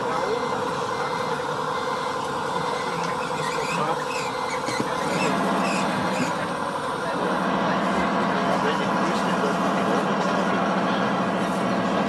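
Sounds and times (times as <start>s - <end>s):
toy hydraulic system buzzing hum: 0.5s - 6.6s
short high squeaks: 3.0s - 6.4s.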